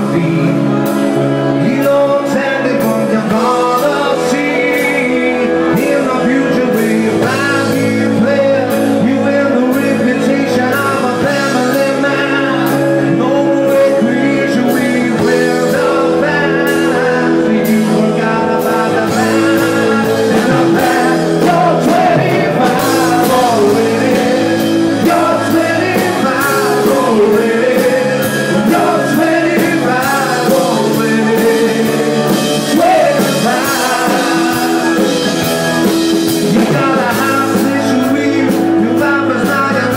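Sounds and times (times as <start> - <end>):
bass guitar: 0.0 - 39.9
drums keeping steady beat: 0.0 - 39.9
electric guitar: 0.0 - 39.9
male singer: 0.0 - 39.9.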